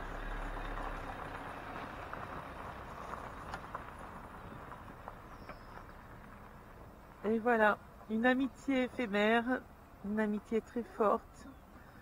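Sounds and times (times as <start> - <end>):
motorhome engine driving off: 0.0 - 7.2
gravel crunching: 0.0 - 12.0.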